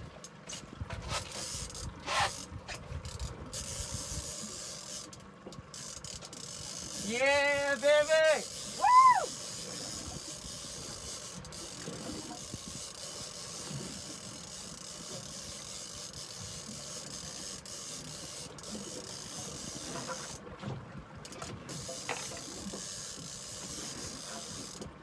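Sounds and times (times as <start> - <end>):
wind and water hiss: 0.0 - 25.0
fishing reel clicker ratcheting: 1.4 - 20.4, 21.3 - 24.9.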